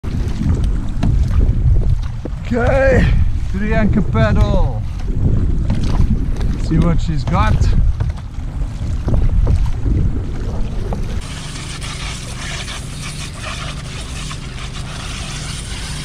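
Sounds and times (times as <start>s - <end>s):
water lapping around kayak: 0.0s - 16.0s
wind buffeting microphone: 0.0s - 16.0s
water pouring over fishing gear: 11.2s - 16.0s.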